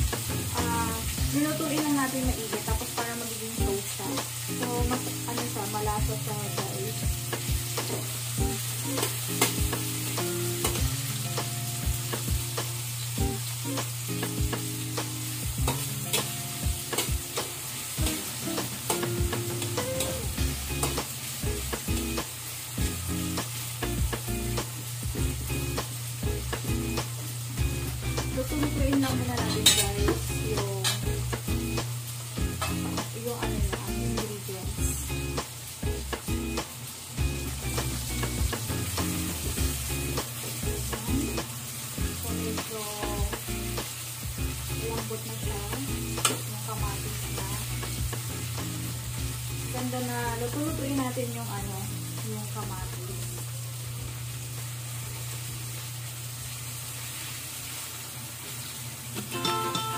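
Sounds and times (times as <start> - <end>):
onion and garlic sizzling in oil: 0.0 - 59.9
metal spatula scraping wok: 29.4 - 30.0.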